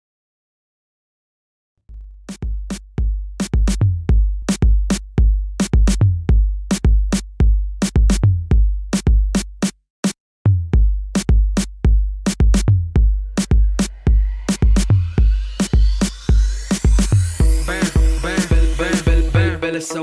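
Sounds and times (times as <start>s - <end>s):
hip-hop drum machine beat: 1.9s - 20.0s.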